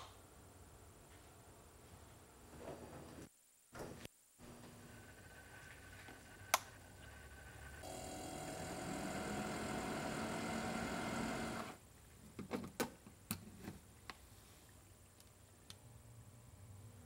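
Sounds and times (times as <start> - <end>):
fridge cooling unit humming: 4.4 - 11.8.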